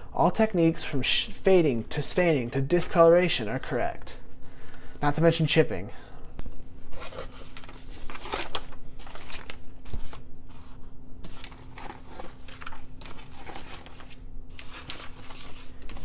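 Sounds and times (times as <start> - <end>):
paper sheets rustling: 6.9 - 16.0.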